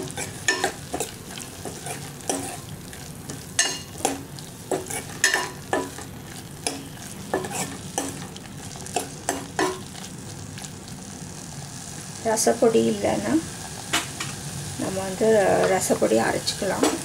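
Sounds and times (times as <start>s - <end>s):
metal spoon scraping pot: 0.0s - 2.7s, 6.6s - 8.3s
frying sizzle: 0.0s - 17.0s.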